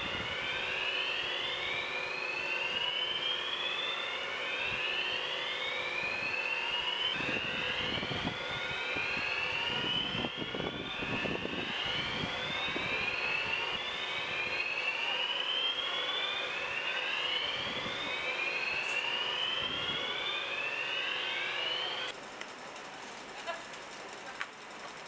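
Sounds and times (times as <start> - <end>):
fire alarm rising whoop tone: 0.0 - 22.2.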